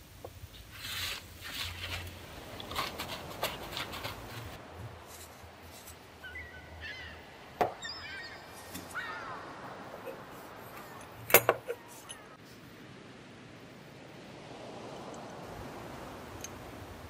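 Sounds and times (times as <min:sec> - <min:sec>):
paper towel rustling: 0:00.6 - 0:06.1.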